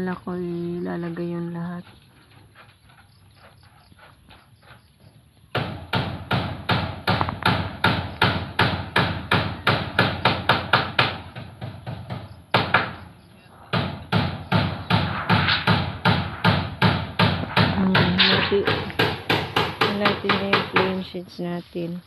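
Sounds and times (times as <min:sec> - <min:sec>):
hammer on metal roofing: 0:05.5 - 0:13.1, 0:13.7 - 0:21.1.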